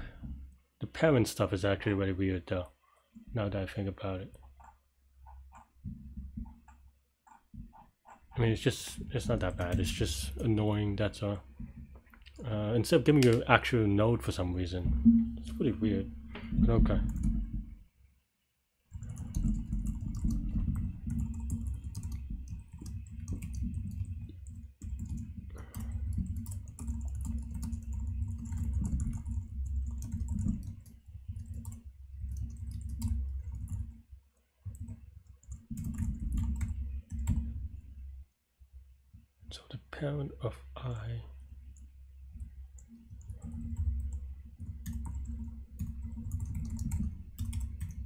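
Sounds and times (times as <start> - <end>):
typing on computer keyboard: 6.5 - 8.3, 9.2 - 10.7, 17.0 - 17.5, 18.9 - 34.0, 34.7 - 37.5, 42.4 - 48.0.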